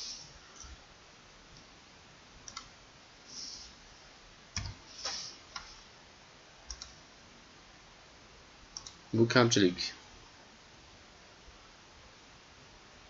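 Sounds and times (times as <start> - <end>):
computer mouse clicks: 2.4 - 2.7, 4.6 - 5.8, 6.7 - 7.0, 8.7 - 9.0
keystrokes: 2.4 - 2.7, 4.6 - 4.8, 6.7 - 7.0, 8.8 - 9.0
short soft hisses: 3.3 - 3.8, 4.9 - 5.8.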